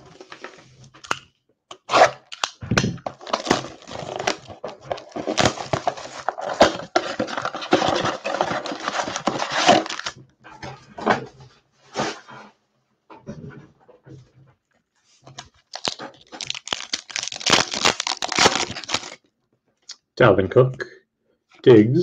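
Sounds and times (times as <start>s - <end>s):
cardboard flap opening: 1.8s - 10.2s
shrink wrap crackling and crinkling: 1.8s - 10.2s, 15.2s - 19.2s.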